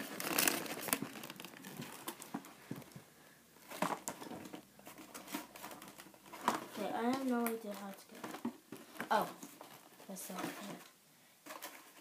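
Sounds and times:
cardboard box rustling: 0.0s - 2.5s.

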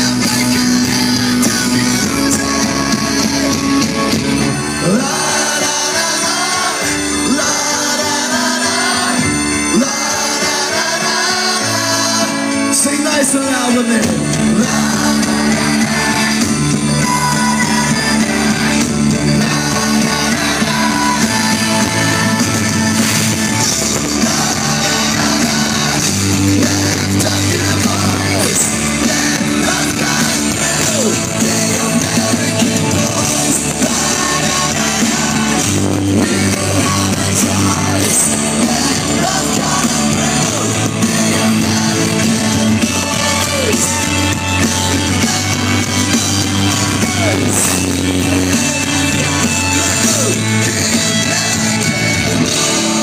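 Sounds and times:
person singing: 0.0s - 53.0s
rock band playing live: 0.0s - 53.0s.

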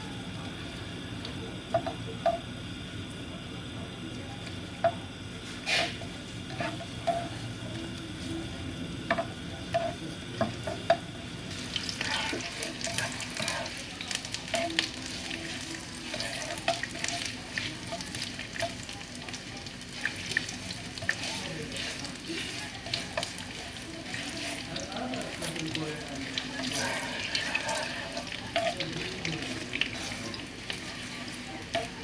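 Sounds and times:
ginger frying in oil: 0.0s - 32.0s
spatula scraping a pan: 5.4s - 7.4s, 11.5s - 18.8s, 20.0s - 25.6s, 26.2s - 32.0s.

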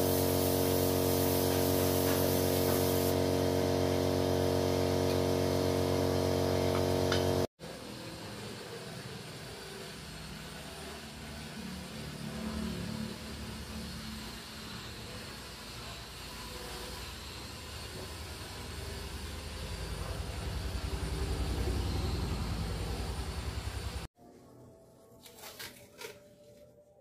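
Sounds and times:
air compressor humming: 0.0s - 7.5s, 13.2s - 24.1s
paint spray gun hissing: 0.0s - 7.5s.

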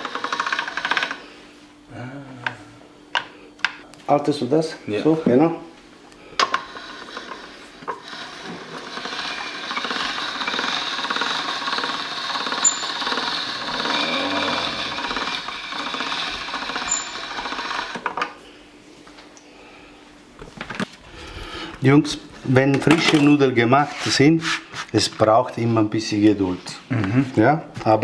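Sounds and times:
pasta roller machine rattling: 0.0s - 1.2s, 6.4s - 18.2s.

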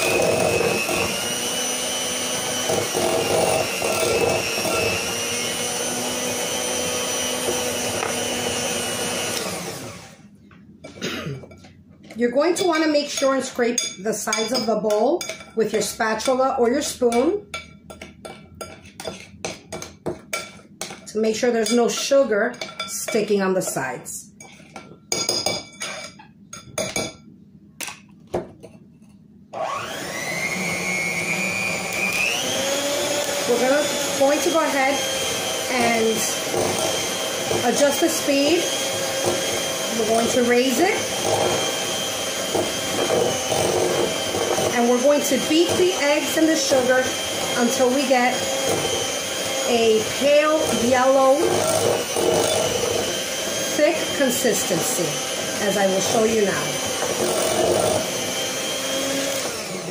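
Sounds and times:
electric hand mixer running: 0.0s - 10.3s, 29.5s - 59.9s.

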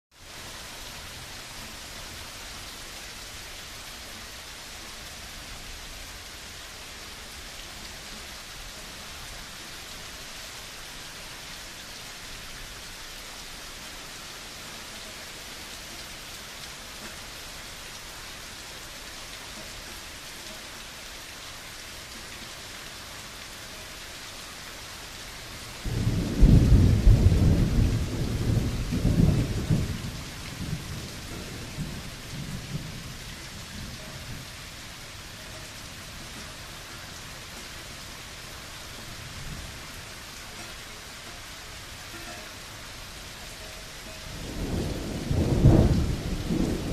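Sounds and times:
heavy rain hissing: 0.1s - 46.9s
thunderclap rumbling: 25.9s - 34.5s, 44.4s - 46.9s.

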